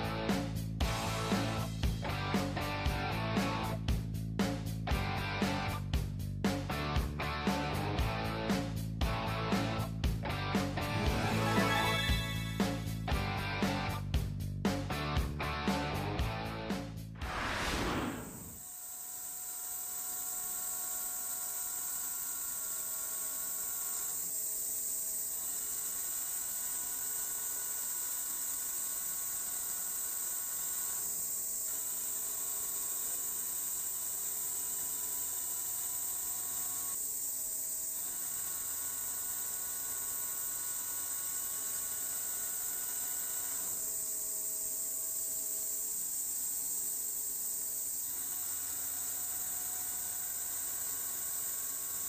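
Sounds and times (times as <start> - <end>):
high hiss: 17.2 - 18.6.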